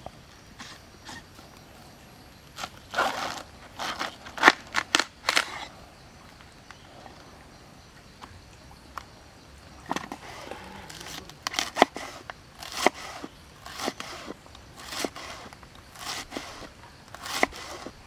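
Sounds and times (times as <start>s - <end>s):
knife crunching through cabbage: 11.2s - 17.9s.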